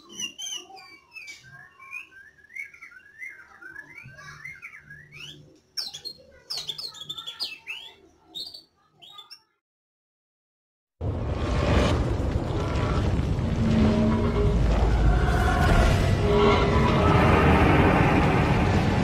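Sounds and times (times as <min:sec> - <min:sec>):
bird singing whistled warbles: 0:00.0 - 0:09.5.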